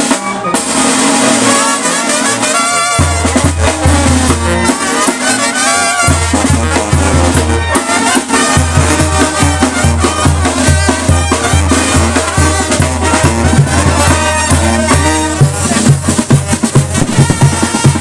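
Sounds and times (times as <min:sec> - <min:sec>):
brass band music: 0:00.0 - 0:18.0.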